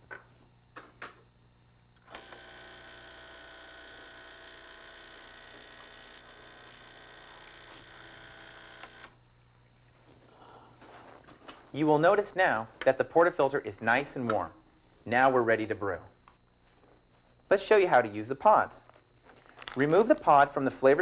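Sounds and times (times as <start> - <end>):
espresso machine pump humming: 1.9 - 10.5.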